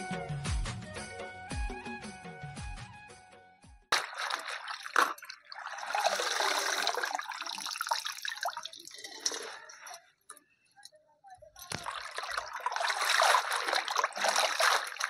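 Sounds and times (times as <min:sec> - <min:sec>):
water splashing and sloshing: 0:03.9 - 0:10.2, 0:11.6 - 0:15.0
water dripping: 0:03.9 - 0:10.9, 0:11.6 - 0:15.0.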